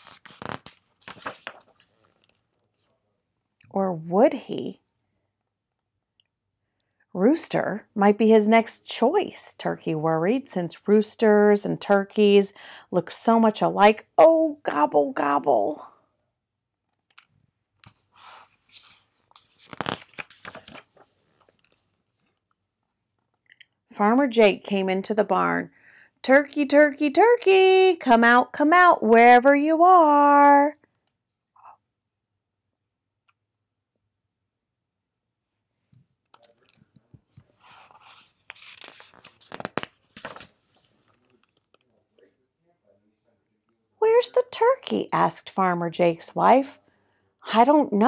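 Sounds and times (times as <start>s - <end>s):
book pages rustling: 0.0s - 2.9s, 17.1s - 22.5s, 36.3s - 41.9s
paper crinkle: 0.0s - 2.9s, 17.9s - 22.3s, 36.4s - 41.8s.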